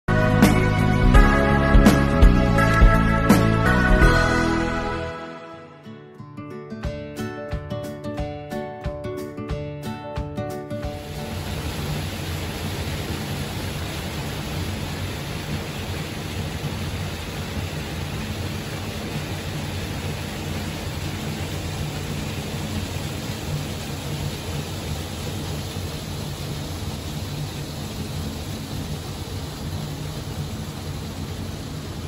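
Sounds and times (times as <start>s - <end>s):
fountain spray falling on water: 10.9s - 32.0s
low steady hum: 11.3s - 32.0s.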